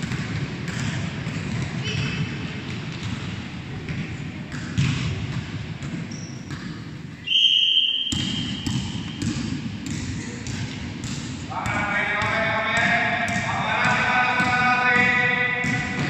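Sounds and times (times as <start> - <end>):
basketballs bouncing on gym floor: 0.0 - 7.3, 8.0 - 16.0
high whistle tone: 7.2 - 8.6.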